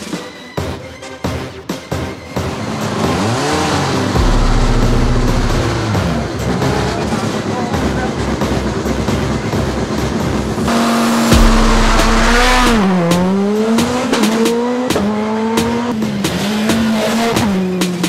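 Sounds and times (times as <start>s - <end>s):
background music with a beat: 0.0s - 18.0s
rally car engine at high revs: 2.4s - 18.0s.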